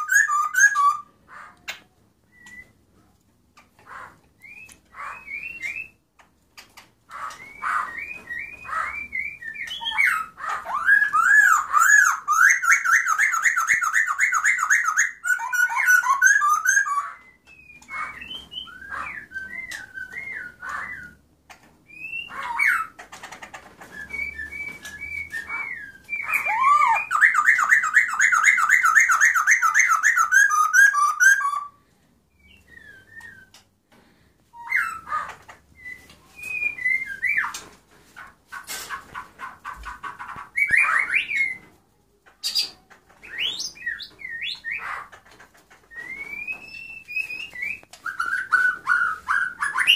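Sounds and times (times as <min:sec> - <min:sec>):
songbird singing whistled phrases: 0:00.0 - 0:01.1, 0:02.2 - 0:02.8, 0:04.4 - 0:06.0, 0:07.2 - 0:21.2, 0:21.9 - 0:22.9, 0:23.8 - 0:31.7, 0:32.3 - 0:33.6, 0:35.8 - 0:37.6, 0:45.9 - 0:49.9.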